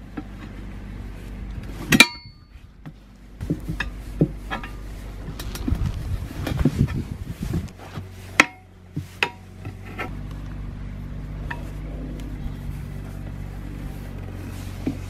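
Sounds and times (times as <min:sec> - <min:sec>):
low knocks and scuffs: 0:02.5 - 0:08.2.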